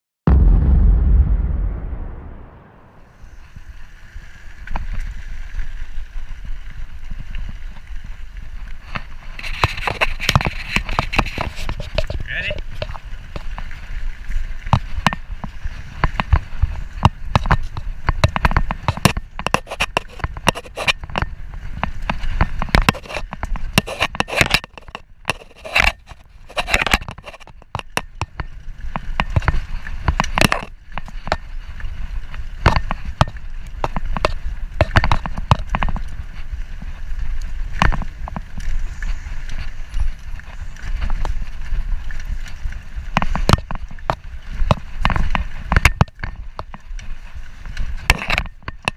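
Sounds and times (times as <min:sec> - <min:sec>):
steady low rumble: 0:00.3 - 0:04.6
bike tyres rolling on gravel: 0:02.5 - 0:48.9
bike rattling over bumps: 0:03.0 - 0:48.9.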